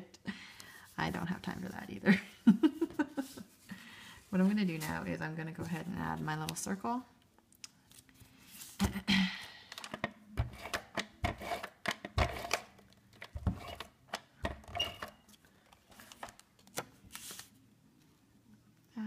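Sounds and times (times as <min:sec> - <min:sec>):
tape runner clicks and scrapes: 0:10.4 - 0:15.2
paper being handled: 0:15.9 - 0:17.6.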